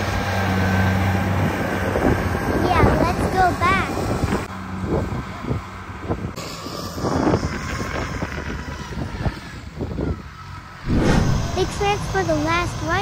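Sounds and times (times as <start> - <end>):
harvester engines humming: 0.0 - 7.3, 8.3 - 13.0
machinery clanks: 10.8 - 13.0.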